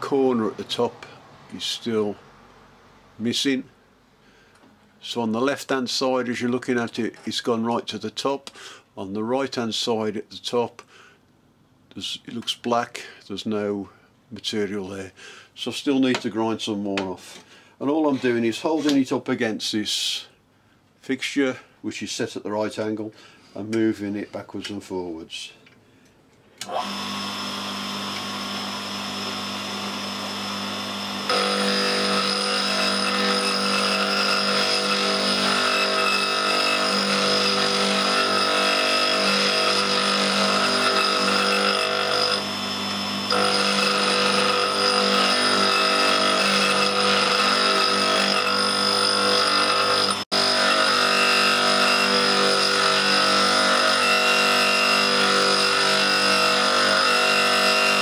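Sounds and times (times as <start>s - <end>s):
grinder motor whine: 26.6s - 58.0s
metal tool grinding on wheel: 31.3s - 42.5s, 43.3s - 58.0s.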